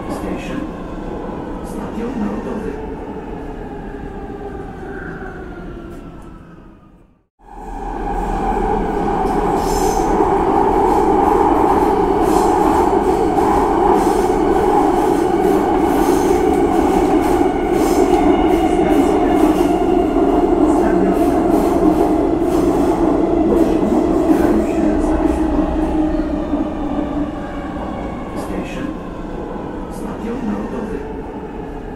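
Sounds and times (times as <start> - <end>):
subway train rumbling in tunnel: 0.0 - 31.9.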